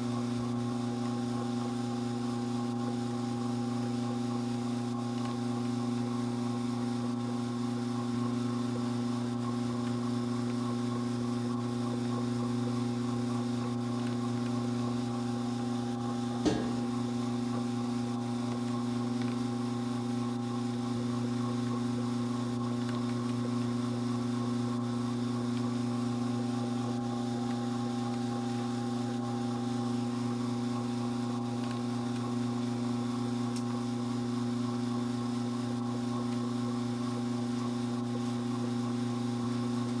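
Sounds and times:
drum carder motor hum: 11.8 - 18.6.

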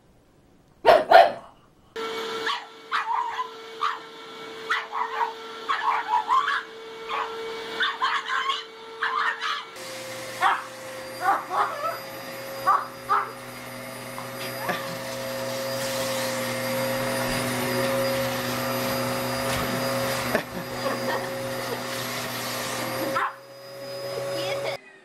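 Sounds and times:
dog barking: 0.8 - 1.5, 2.4 - 4.1, 4.7 - 9.7, 10.4 - 12.0, 12.6 - 13.3, 23.2 - 23.4
vacuum cleaner motor humming: 2.0 - 24.8.

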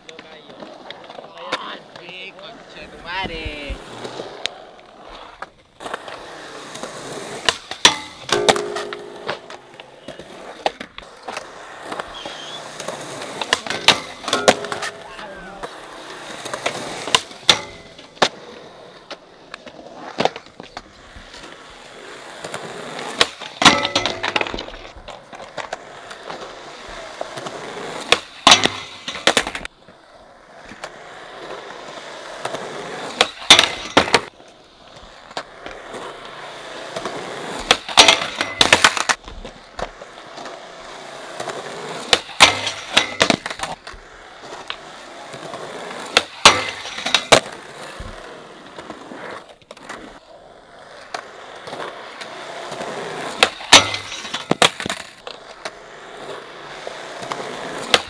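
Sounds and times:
skateboard wheels rolling on concrete: 0.0 - 58.0
skateboard clacking on metal rail: 7.4 - 9.9, 13.4 - 15.0, 16.5 - 18.4, 23.2 - 24.9, 28.1 - 29.7, 33.1 - 34.3, 37.6 - 39.2, 42.0 - 43.8, 46.0 - 47.6, 52.7 - 55.3, 57.2 - 58.0.

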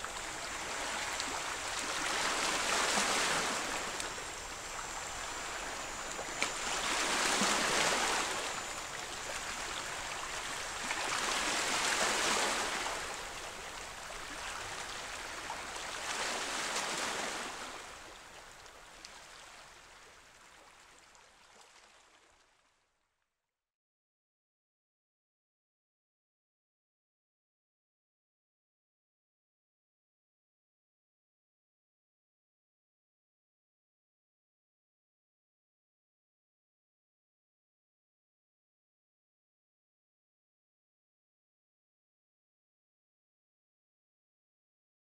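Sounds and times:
small waves washing over rocks: 0.0 - 17.9.

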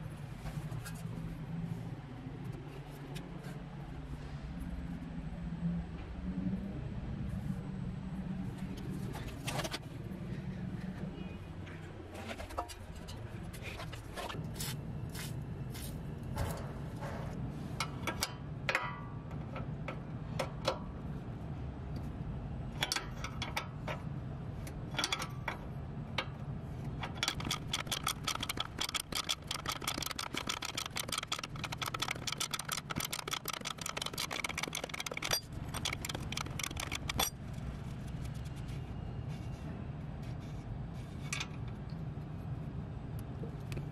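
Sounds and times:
steady low hum: 0.0 - 43.9
wrench clinking on metal: 27.0 - 37.4
fast ratcheting clicks: 27.0 - 38.0.

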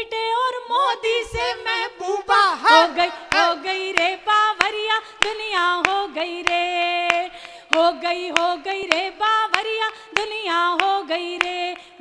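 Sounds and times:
woman singing unaccompanied: 0.0 - 12.0
hands clapping a steady beat: 3.3 - 12.0.

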